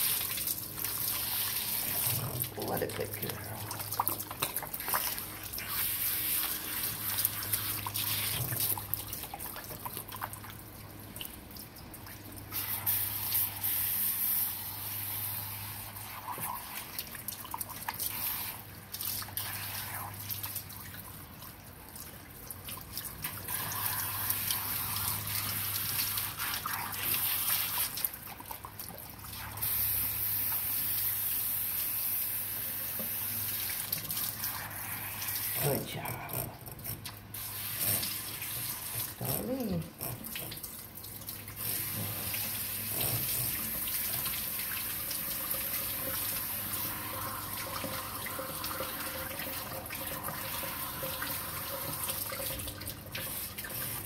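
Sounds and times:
water sprayer rinsing: 0.0 - 54.0
water dripping into sink: 7.7 - 12.5, 35.2 - 54.0.

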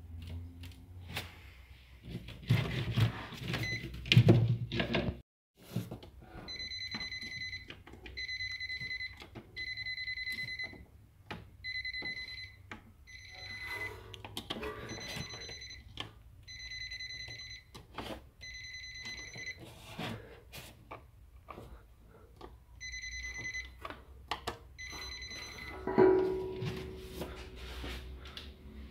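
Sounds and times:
electrical tester beeping: 6.5 - 10.8, 11.6 - 14.0, 14.7 - 17.8, 18.4 - 19.6, 22.8 - 23.8, 24.8 - 26.6.

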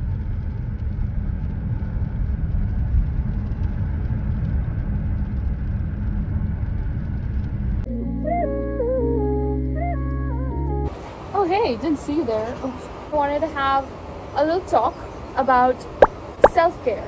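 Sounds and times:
road and engine rumble in vehicle: 0.0 - 7.9, 9.2 - 17.0
simple melody music: 7.9 - 10.9.

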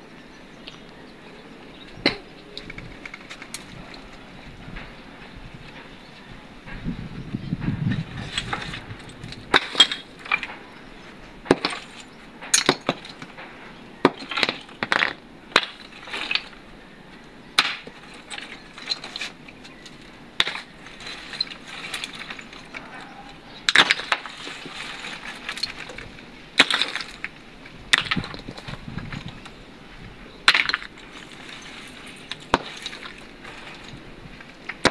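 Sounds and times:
concrete and tile chunks clinking: 8.1 - 16.6, 17.6 - 29.5, 30.4 - 34.9.

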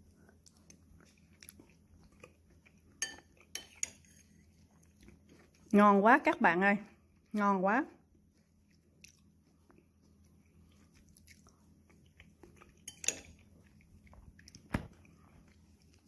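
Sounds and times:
faint chewing: 0.0 - 5.8, 8.1 - 16.0
spoon clinking against ceramic bowl: 3.0 - 4.2, 12.8 - 13.4.

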